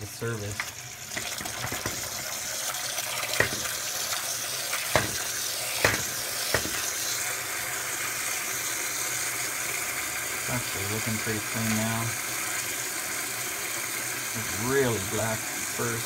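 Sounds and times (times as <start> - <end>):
water splashing into plastic tub: 3.0 - 6.9.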